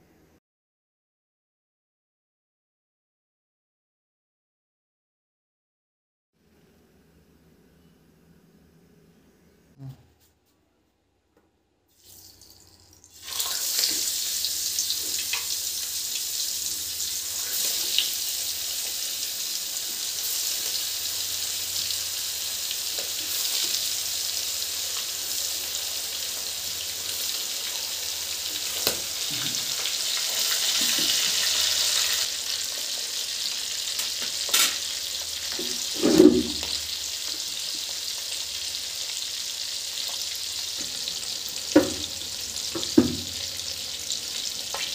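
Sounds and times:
fish sizzling in hot oil: 12.0s - 44.9s.

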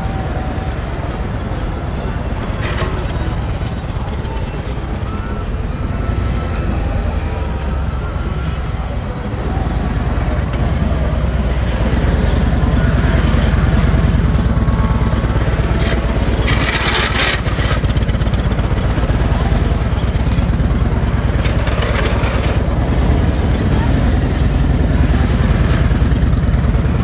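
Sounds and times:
motorcycle engine running: 8.6s - 27.0s.

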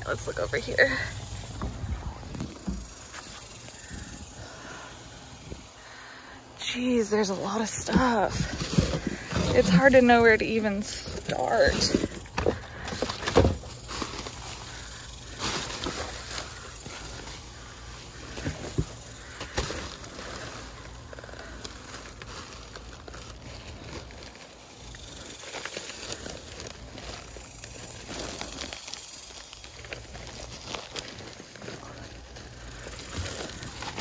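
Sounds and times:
plastic bags rustling and crinkling: 6.8s - 34.0s.

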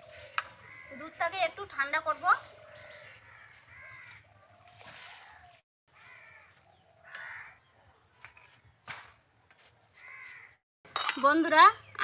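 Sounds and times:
crows cawing: 0.0s - 1.3s, 2.4s - 7.7s, 10.0s - 10.6s.

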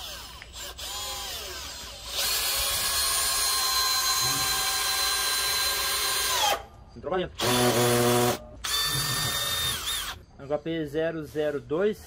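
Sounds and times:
cordless drill whining: 0.0s - 6.6s, 7.4s - 10.2s.

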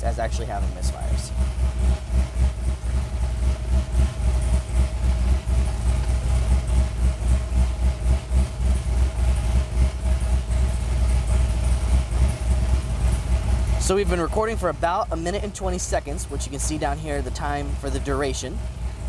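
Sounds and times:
car engine idling unevenly: 0.0s - 19.0s
engine misfires: 0.0s - 19.0s.

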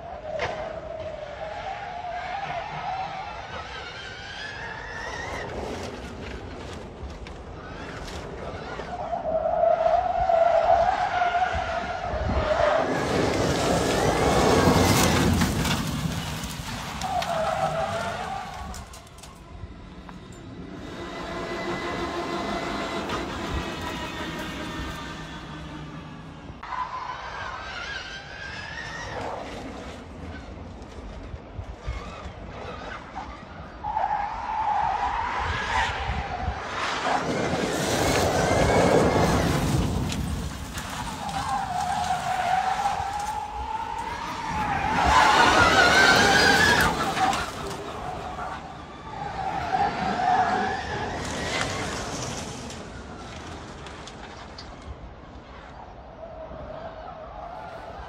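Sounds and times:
tyre and road noise: 0.0s - 58.0s
high wavering squeal: 17.0s - 28.6s.

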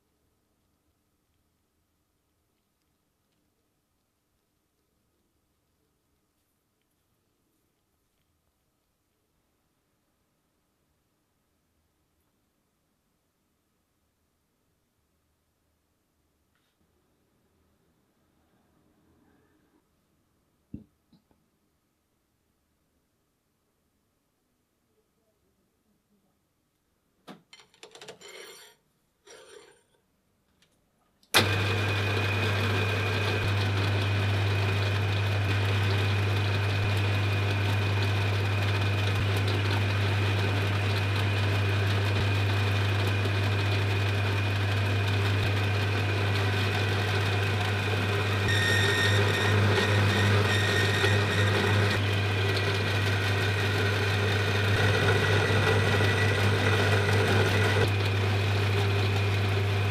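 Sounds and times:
workshop machine humming: 31.4s - 59.9s.

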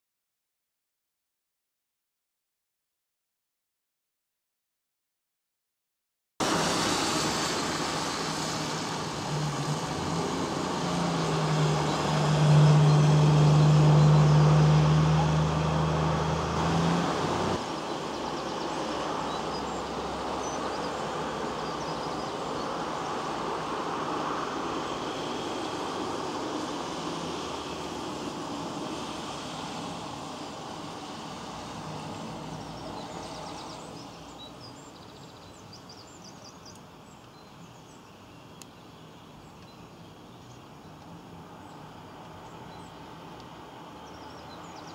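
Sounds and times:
low engine hum: 6.4s - 35.6s, 40.8s - 44.9s
road traffic rushing: 6.4s - 35.6s, 39.3s - 44.9s.

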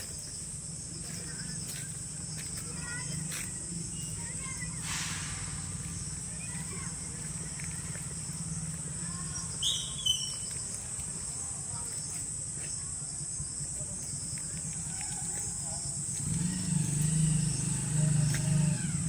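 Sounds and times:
bird chirps: 0.0s - 12.2s
insects droning: 0.0s - 19.0s.

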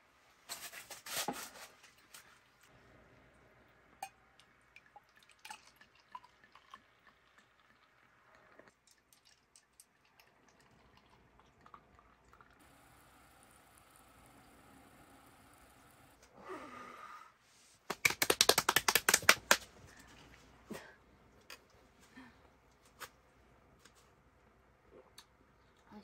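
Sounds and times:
sparkling wine pouring and fizzing: 2.6s - 16.2s.

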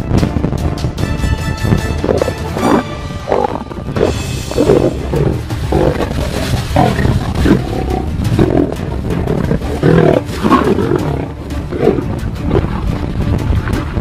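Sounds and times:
lions growling: 2.0s - 13.1s.

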